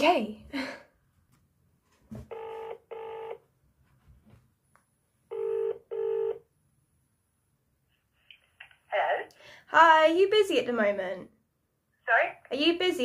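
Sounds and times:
telephone ringback tone: 2.3s - 3.4s, 5.3s - 6.4s.

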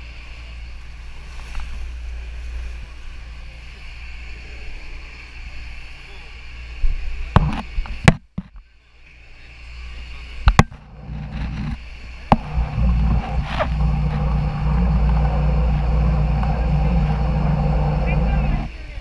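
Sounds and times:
speedboat engine droning: 10.0s - 19.0s.

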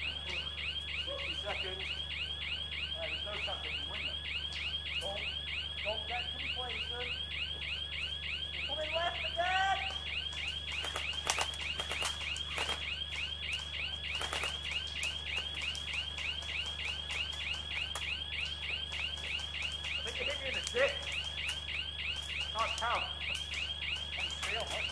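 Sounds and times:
electronic alarm sweeping tone: 0.0s - 24.9s
sharp clicks: 9.8s - 24.9s.

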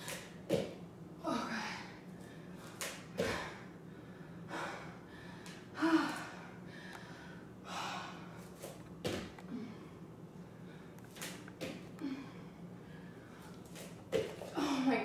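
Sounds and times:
bare feet thumping on mat: 0.5s - 0.8s, 9.0s - 9.4s, 13.8s - 14.6s
woman panting and gasping: 4.4s - 8.4s.

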